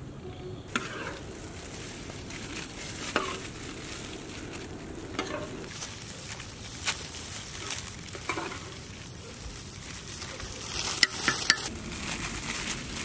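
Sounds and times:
metal ladle scraping pot: 0:00.7 - 0:03.6, 0:05.0 - 0:05.7, 0:08.1 - 0:08.8, 0:11.0 - 0:11.7.

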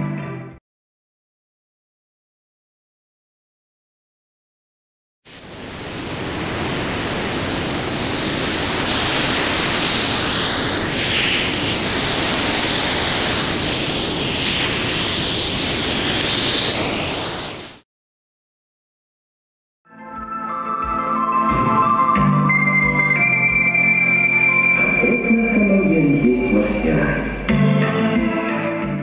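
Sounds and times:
static-like rushing noise: 0:05.3 - 0:17.8.

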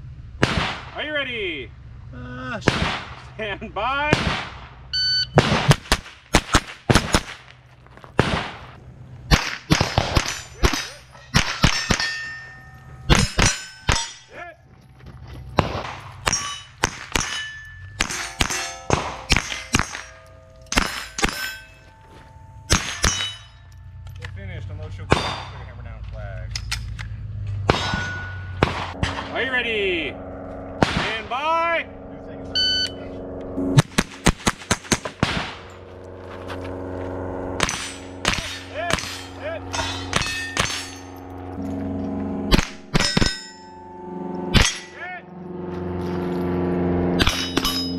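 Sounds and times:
rifle shots: 0:00.4 - 0:01.0, 0:02.7 - 0:03.2, 0:04.1 - 0:04.8, 0:05.4 - 0:07.5, 0:08.2 - 0:08.7, 0:09.3 - 0:12.1, 0:15.6 - 0:17.4, 0:18.0 - 0:21.4, 0:27.6 - 0:29.4, 0:30.8 - 0:31.3, 0:33.8 - 0:35.7, 0:37.6 - 0:41.0
bullets clanging on steel plates: 0:09.8 - 0:14.4, 0:16.2 - 0:24.3, 0:25.1 - 0:25.7, 0:26.5 - 0:29.3, 0:37.6 - 0:41.2, 0:42.6 - 0:43.8, 0:44.6 - 0:45.0, 0:47.2 - 0:47.9.

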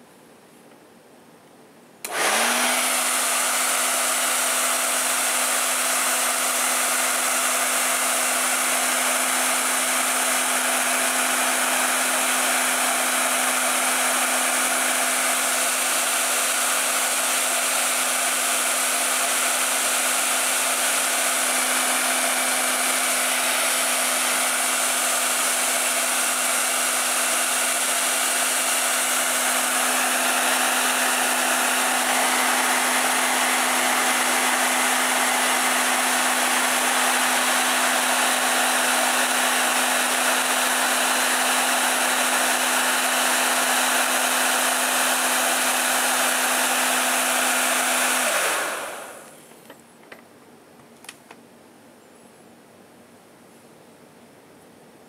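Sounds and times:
hair dryer running: 0:02.0 - 0:49.8.

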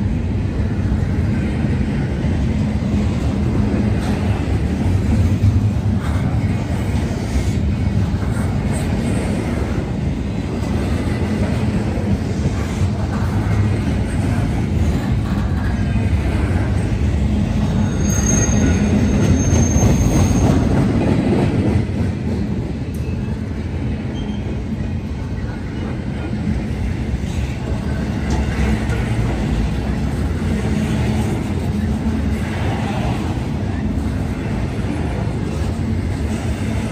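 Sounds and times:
freight train wheels rumbling: 0:00.0 - 0:36.9
high-pitched wheel squeal: 0:17.8 - 0:20.6.

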